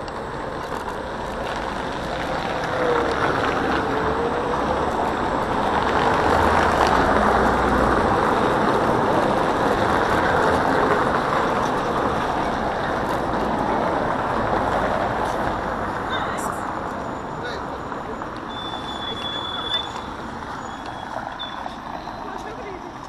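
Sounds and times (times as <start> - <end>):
scooter tyres rumbling on paving: 0.0 - 16.1.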